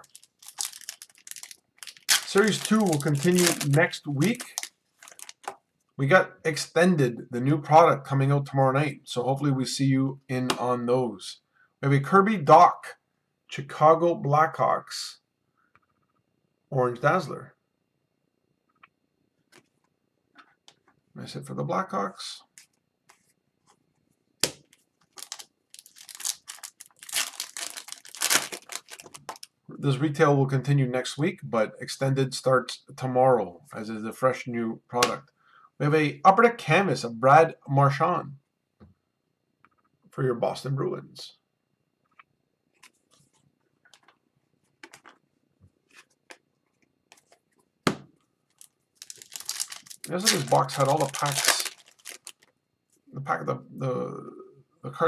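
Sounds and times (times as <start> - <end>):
card pack wrapper tearing: 0.0 - 5.6, 25.1 - 29.5, 48.5 - 52.5
wrapper snapping: 0.0 - 5.6, 24.4 - 29.5, 48.5 - 52.5.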